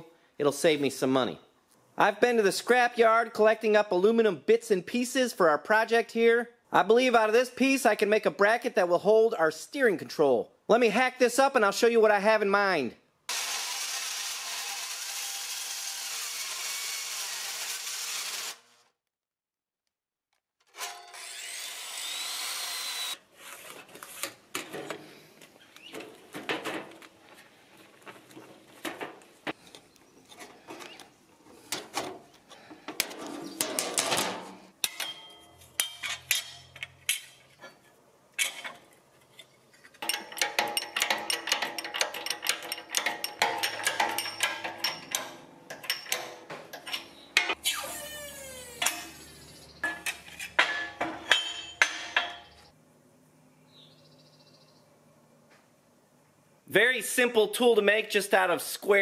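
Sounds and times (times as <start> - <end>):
circular saw cutting metal: 13.3 - 18.6, 20.8 - 23.2, 47.7 - 49.5.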